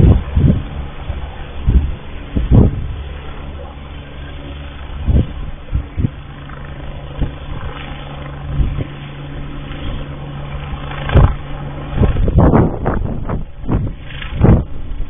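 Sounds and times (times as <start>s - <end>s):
helicopter turbine and rotor: 0.0s - 15.0s
irregular low thumps: 1.7s - 3.0s.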